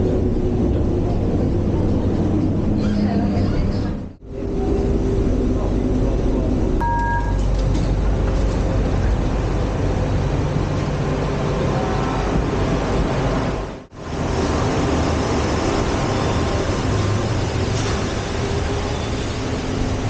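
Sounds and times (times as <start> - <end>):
monorail train running: 0.0 - 20.0
two-tone electronic beep: 6.8 - 7.4.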